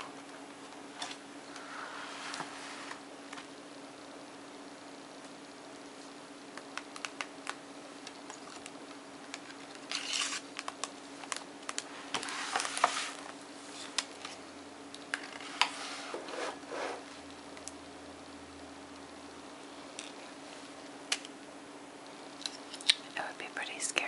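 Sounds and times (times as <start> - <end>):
faint steady hum: 0.0 - 24.0
paper rustling and scratching: 9.5 - 10.8, 11.7 - 14.4.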